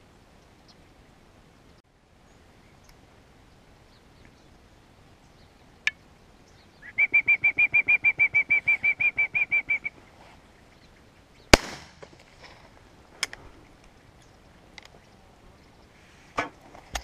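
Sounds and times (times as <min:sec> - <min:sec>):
shotgun shot with echo: 0:11.5 - 0:12.1.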